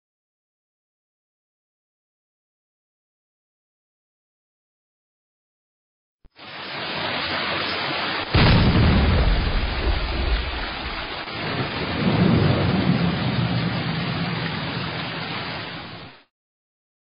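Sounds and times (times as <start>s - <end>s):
rain hiss: 6.3s - 16.3s
rolling thunder rumble: 8.3s - 16.0s.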